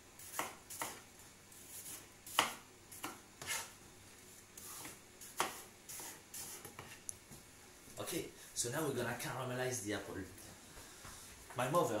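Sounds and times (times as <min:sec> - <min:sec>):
knife chopping on cutting board: 0:00.2 - 0:01.0, 0:01.9 - 0:03.7, 0:04.6 - 0:07.0.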